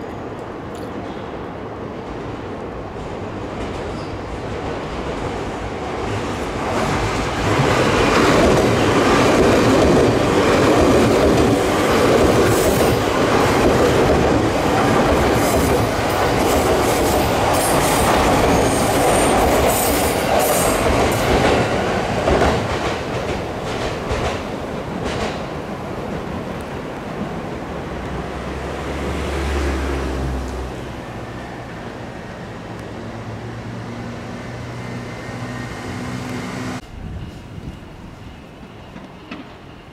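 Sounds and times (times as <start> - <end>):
train wheels rumbling on rail: 0.0 - 39.9.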